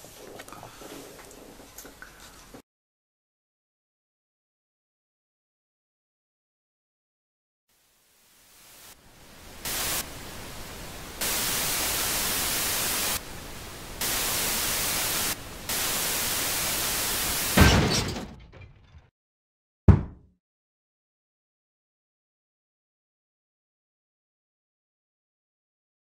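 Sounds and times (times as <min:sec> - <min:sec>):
television static hiss: 0:07.7 - 0:17.6
heavy thump: 0:19.9 - 0:20.3.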